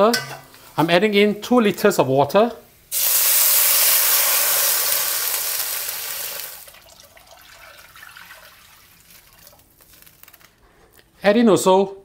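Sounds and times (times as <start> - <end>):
oil sizzling and splashing: 2.8 - 10.5
water pouring into hot oil: 2.9 - 10.3.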